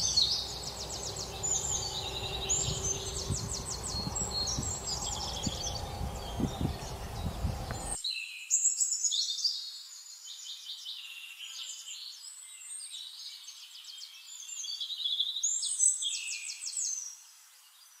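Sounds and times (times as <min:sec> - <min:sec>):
robin singing: 0:00.0 - 0:09.7.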